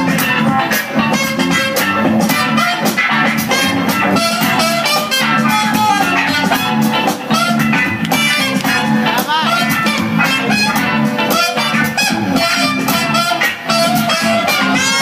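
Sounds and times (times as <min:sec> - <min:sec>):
funk dance music: 0:00.0 - 0:15.0
guitar: 0:00.0 - 0:15.0
steady drum beat: 0:00.0 - 0:15.0.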